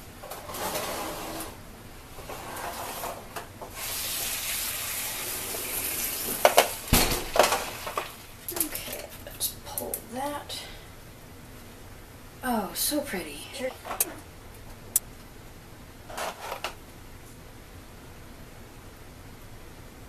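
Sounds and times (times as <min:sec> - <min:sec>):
meat sizzling in a pan: 0:03.8 - 0:06.9.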